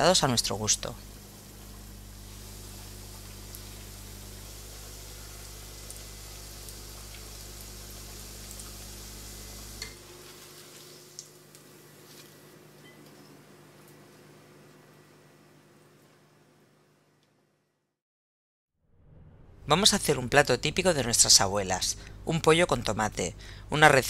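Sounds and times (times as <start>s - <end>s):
food sizzling in hot oil: 1.0s - 12.4s.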